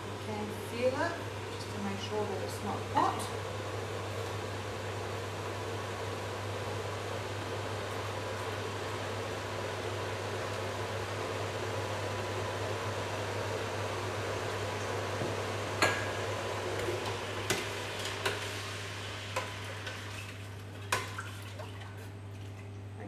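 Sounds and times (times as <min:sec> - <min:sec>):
steady hiss with low hum: 0:00.0 - 0:23.0.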